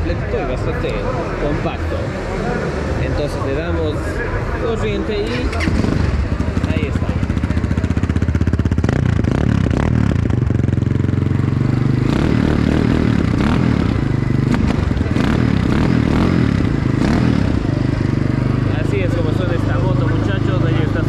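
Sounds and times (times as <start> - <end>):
dirt bike engine running: 2.6 - 21.0.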